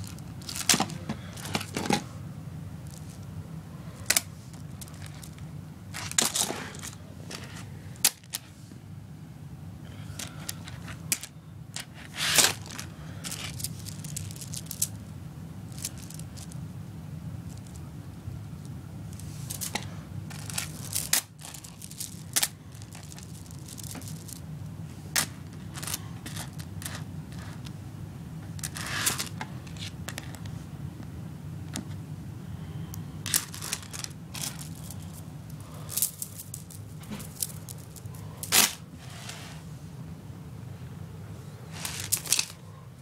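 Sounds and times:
plastic beads clicking and rattling: 0.0s - 2.0s, 4.0s - 5.4s, 6.0s - 8.5s, 10.1s - 15.1s, 15.7s - 16.6s, 17.4s - 17.9s, 18.6s - 24.5s, 25.2s - 27.7s, 28.5s - 30.4s, 33.2s - 38.8s, 41.7s - 42.6s.

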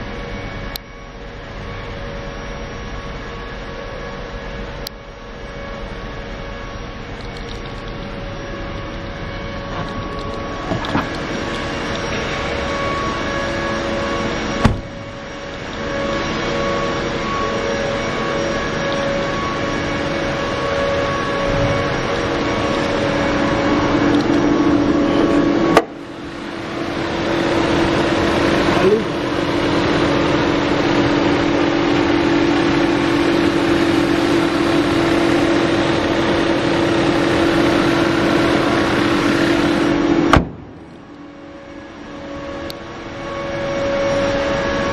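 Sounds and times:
car engine running: 7.0s - 44.9s
engine cutting off click: 9.8s - 12.5s, 24.1s - 24.4s
car door slamming: 14.6s - 15.0s, 40.3s - 40.9s.

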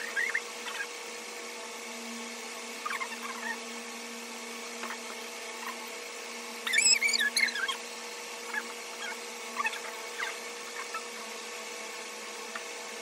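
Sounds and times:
high quick chirping calls: 6.6s - 7.8s.

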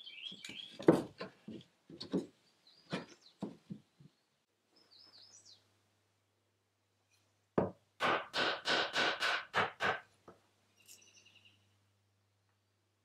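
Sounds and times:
bird chirping: 0.0s - 0.9s, 2.4s - 5.7s, 10.7s - 11.8s
light wooden knocks: 0.4s - 4.2s.

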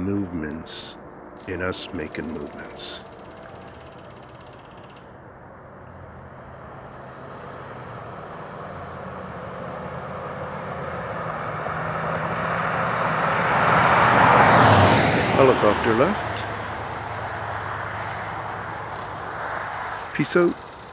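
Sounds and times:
helicopter engine and rotor: 0.0s - 8.1s, 15.4s - 20.9s.

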